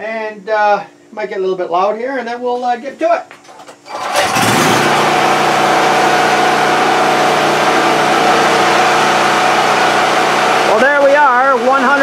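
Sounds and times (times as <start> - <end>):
generator engine hum: 3.4 - 12.0.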